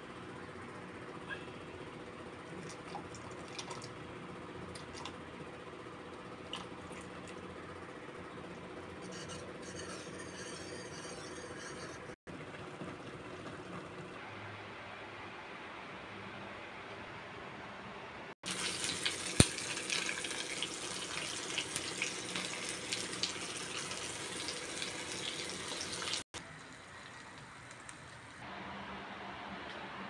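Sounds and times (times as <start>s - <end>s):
fish sizzling in hot oil: 18.4s - 26.2s.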